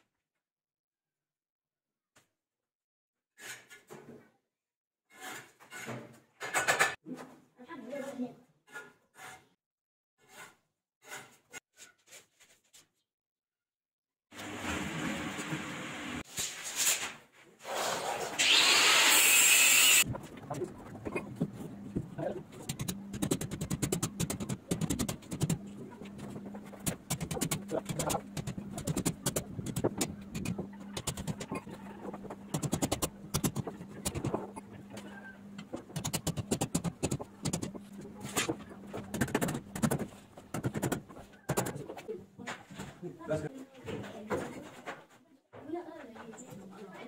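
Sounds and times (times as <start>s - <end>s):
angle grinder cutting metal: 18.4s - 20.1s.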